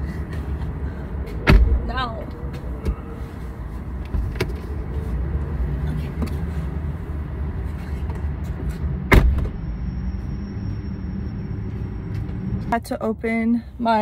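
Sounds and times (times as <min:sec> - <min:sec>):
steady low rumble: 0:00.0 - 0:14.0
car door slamming: 0:01.4 - 0:01.8, 0:09.1 - 0:09.6.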